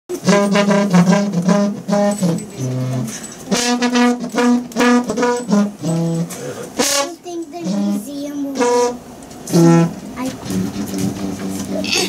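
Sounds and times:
garden hose blown like a bugle: 0.1 - 12.0.

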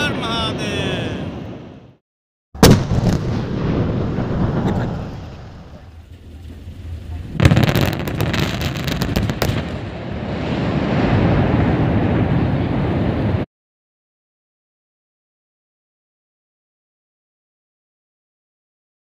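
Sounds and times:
sharp cracks: 2.6 - 4.8
blast bang: 2.6 - 6.2
blast rumble: 2.6 - 13.4.

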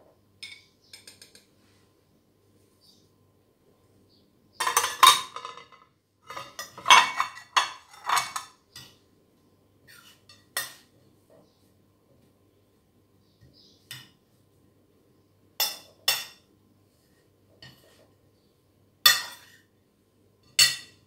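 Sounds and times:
metal spoon scraping ceramic plate: 4.6 - 8.9.

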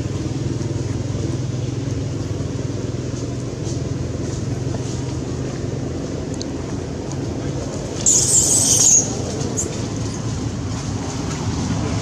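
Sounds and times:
low engine-like rumble: 0.0 - 12.0
monkey screeching: 8.0 - 9.7.

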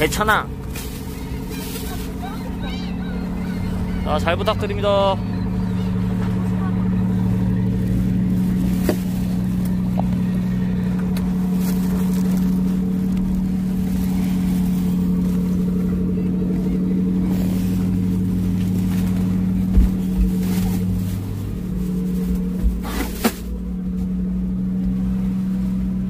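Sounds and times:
motorboat engine running: 0.0 - 26.0
low thumps: 5.4 - 24.2.

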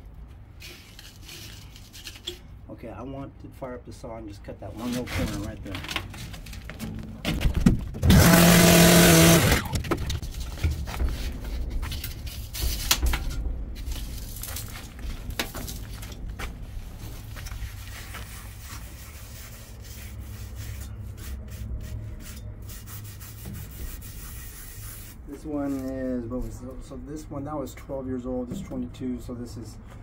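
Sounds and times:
cut-off saw running: 8.0 - 9.8.

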